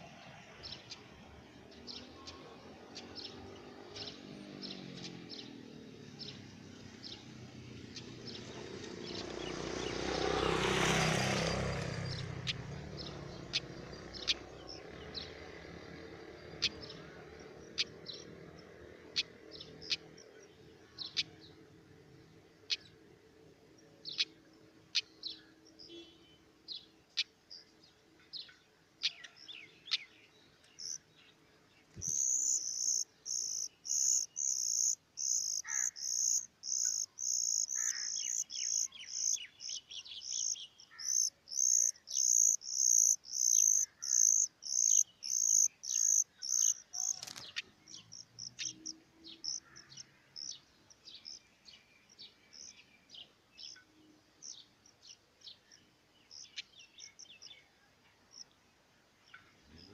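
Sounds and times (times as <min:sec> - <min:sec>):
nestlings begging calls: 0:10.9 - 0:20.4, 0:30.8 - 0:31.0, 0:31.9 - 0:51.4
faint scattered chirps: 0:31.9 - 0:48.9.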